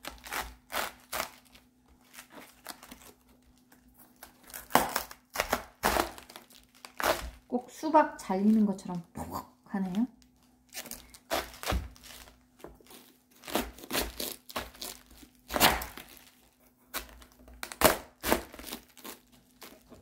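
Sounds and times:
knife cutting cabbage: 0.0s - 3.2s, 4.1s - 7.5s, 10.7s - 20.0s
cabbage head splitting with pop: 4.5s - 6.2s, 15.5s - 16.1s.

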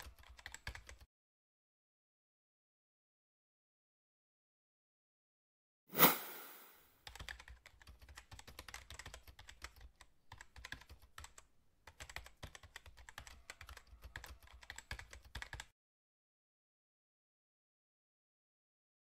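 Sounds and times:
keyboard typing clicks: 0.0s - 1.1s, 7.0s - 15.7s.

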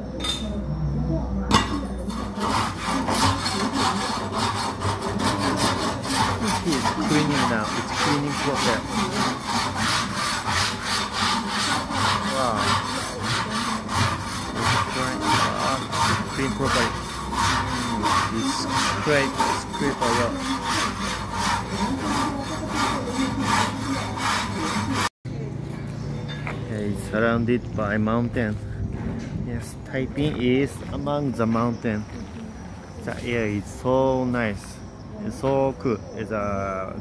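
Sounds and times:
metal shovel scraping coffee beans: 2.0s - 25.0s.

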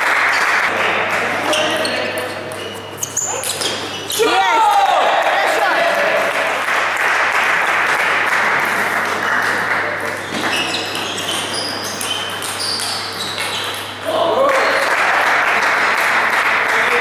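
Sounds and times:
murmur of voices: 0.7s - 7.0s
short high squeaks: 1.4s - 4.3s, 10.2s - 14.0s
table tennis balls clicking: 9.0s - 14.0s.

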